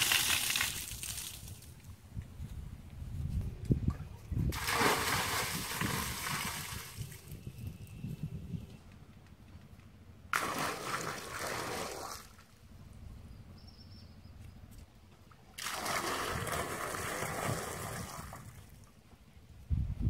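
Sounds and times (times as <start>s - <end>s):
water pouring and splashing: 0.0s - 1.8s, 4.5s - 7.4s, 10.3s - 12.4s, 15.6s - 18.8s.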